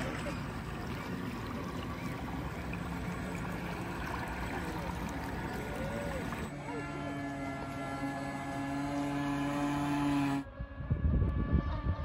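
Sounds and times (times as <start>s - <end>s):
water trickling and splashing: 0.0s - 6.6s.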